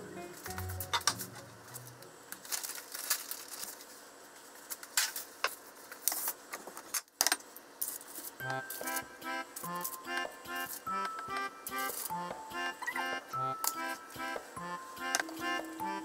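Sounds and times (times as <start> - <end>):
background music: 0.0 - 2.1, 8.4 - 16.0.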